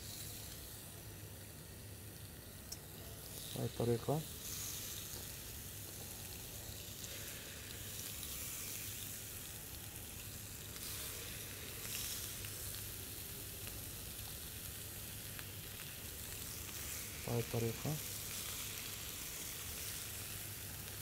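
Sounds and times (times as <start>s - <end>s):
chicken sizzling on a grill: 0.0s - 21.0s.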